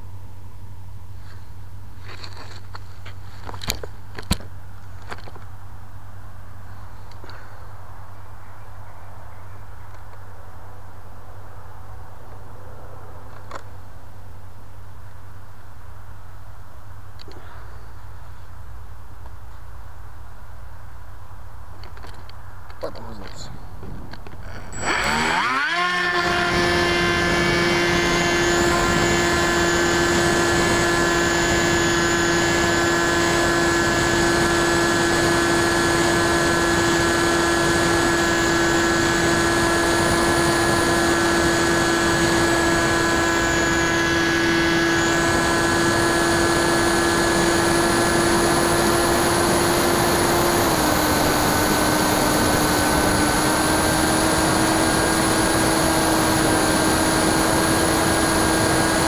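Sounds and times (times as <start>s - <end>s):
electric motor whine: 24.4s - 59.0s.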